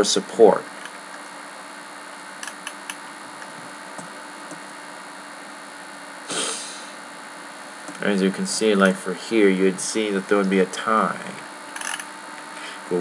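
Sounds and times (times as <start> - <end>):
low mains hum: 0.0 - 13.0
microphone hiss: 0.0 - 13.0
breathy rush of noise: 6.3 - 7.1.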